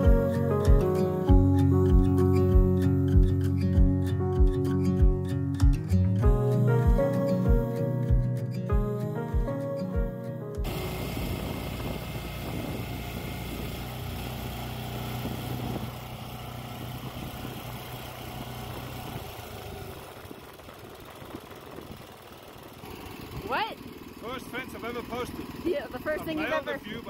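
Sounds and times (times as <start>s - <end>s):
small gas engine idling: 10.6s - 27.0s.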